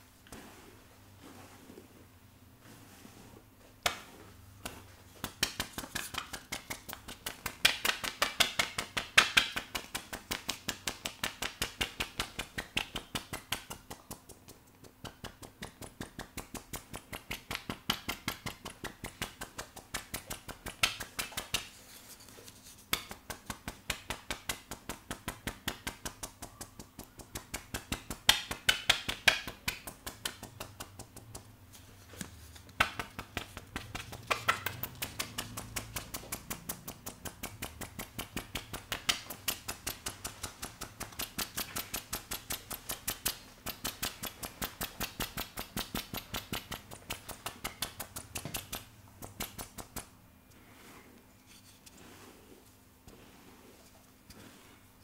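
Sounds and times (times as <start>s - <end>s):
plastic brush scratching wet hair: 50.7s - 55.0s.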